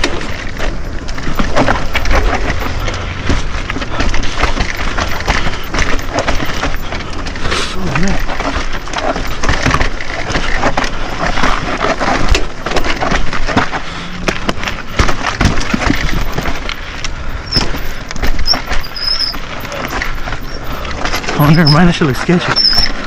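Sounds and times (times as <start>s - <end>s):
bike frame clattering: 0.0s - 23.0s
bike tyres grinding over rock: 0.0s - 23.0s
short high squeaks: 17.4s - 23.0s.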